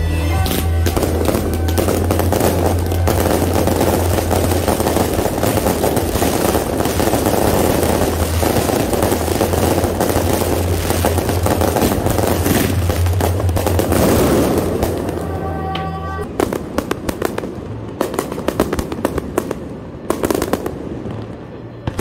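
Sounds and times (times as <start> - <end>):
low hum: 0.0 - 16.4
fireworks popping and crackling: 0.0 - 22.0.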